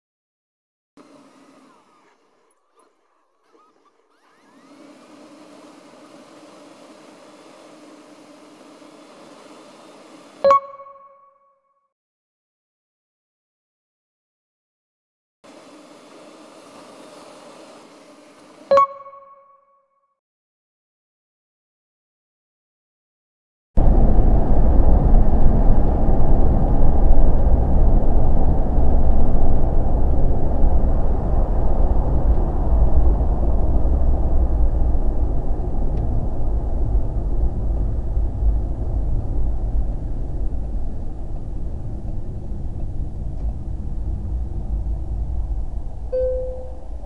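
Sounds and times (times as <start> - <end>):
car engine and road rumble: 23.8 - 47.0.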